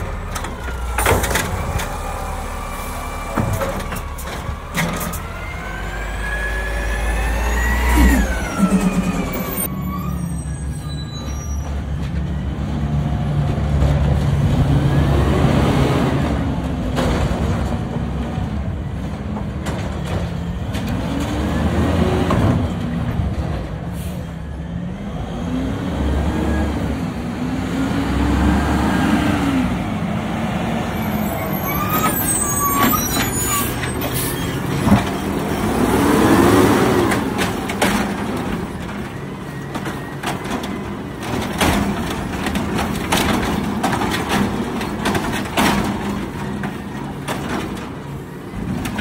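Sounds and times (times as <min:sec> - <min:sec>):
diesel truck engine revving: 0:00.0 - 0:09.7, 0:24.0 - 0:39.7.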